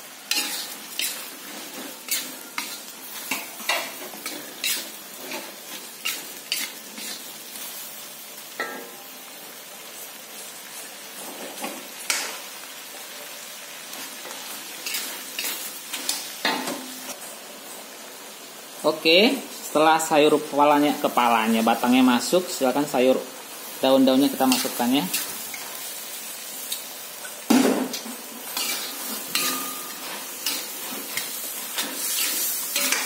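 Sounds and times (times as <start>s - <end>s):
vegetables sizzling in oil: 0.0s - 33.0s
metal spatula scraping a wok: 0.3s - 7.4s, 14.8s - 16.3s, 23.6s - 26.7s, 28.4s - 33.0s.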